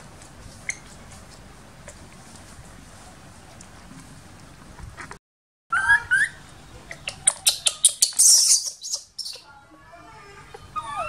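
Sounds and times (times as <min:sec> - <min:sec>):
baby monkey squealing: 0:05.7 - 0:09.5, 0:10.1 - 0:11.0.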